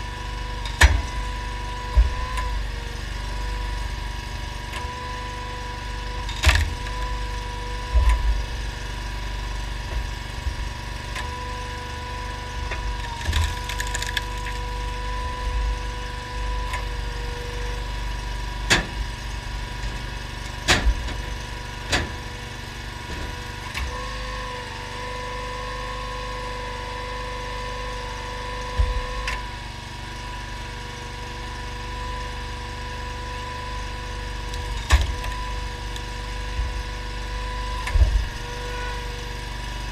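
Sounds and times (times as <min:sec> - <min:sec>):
engine and hydraulic pump whining: 0:00.0 - 0:39.9
wood cracking and splitting: 0:12.5 - 0:16.9, 0:34.0 - 0:38.4.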